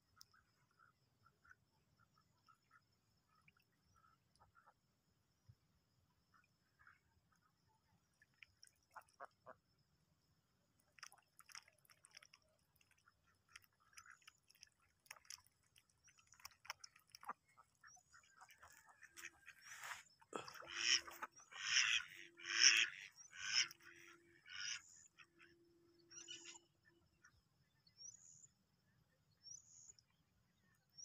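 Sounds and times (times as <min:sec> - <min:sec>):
ducks dabbling in water: 0:06.2 - 0:09.8, 0:10.4 - 0:25.3
ducks quacking: 0:18.5 - 0:24.8.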